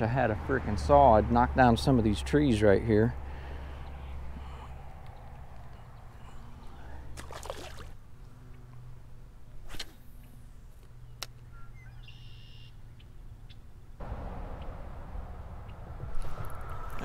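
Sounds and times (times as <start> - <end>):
fish splashing into water: 7.1 - 8.0
low steady rumble: 12.1 - 17.0.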